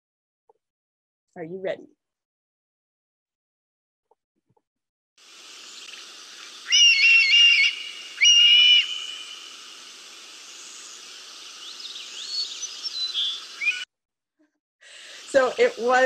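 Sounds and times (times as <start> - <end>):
steady hiss: 5.2 - 13.8, 15.0 - 16.0
short rising bird calls: 5.6 - 9.6, 10.4 - 13.8
hawk calls: 5.8 - 9.7, 11.6 - 13.8.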